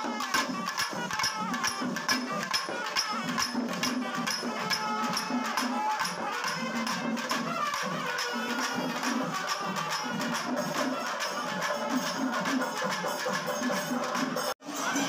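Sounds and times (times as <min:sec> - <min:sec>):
cymbals clashing: 0:00.0 - 0:15.0.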